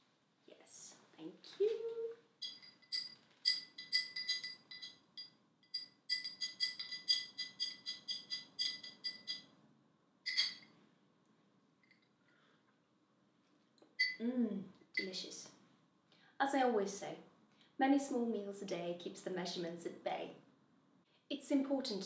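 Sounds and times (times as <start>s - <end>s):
straw clinking against glass: 2.4s - 9.5s, 10.3s - 10.7s.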